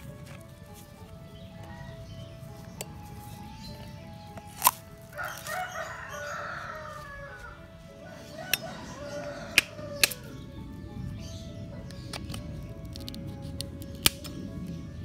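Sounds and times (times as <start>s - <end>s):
soft background music: 0.0s - 15.0s
rooster crowing: 5.1s - 10.4s.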